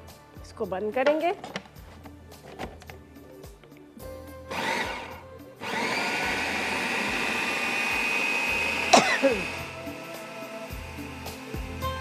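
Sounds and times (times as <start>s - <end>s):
electric chopper motor whining: 4.5s - 9.8s.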